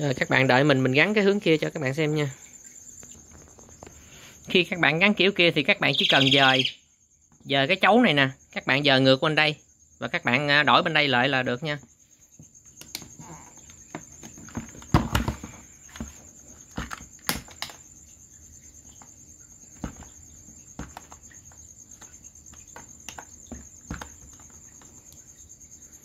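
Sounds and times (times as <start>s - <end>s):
cricket trill: 0.0s - 26.0s
plastic parts clicking and knocking: 12.8s - 17.9s, 19.7s - 25.2s.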